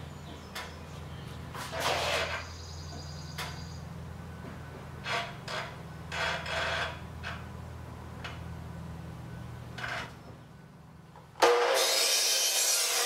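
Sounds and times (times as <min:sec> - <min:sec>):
wooden post scraping: 0:01.5 - 0:02.5, 0:05.0 - 0:07.5.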